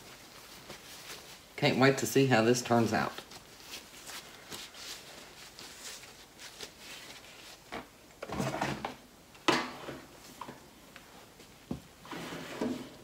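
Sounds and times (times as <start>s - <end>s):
paper rustling: 0.0s - 1.6s, 2.9s - 7.9s.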